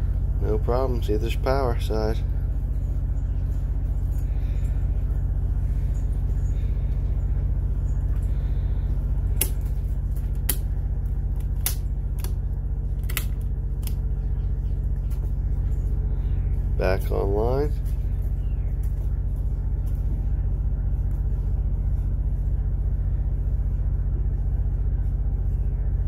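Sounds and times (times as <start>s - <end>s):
generator droning: 0.0s - 26.0s
breaker switches clicking: 9.4s - 9.6s, 11.4s - 12.4s, 13.0s - 14.0s.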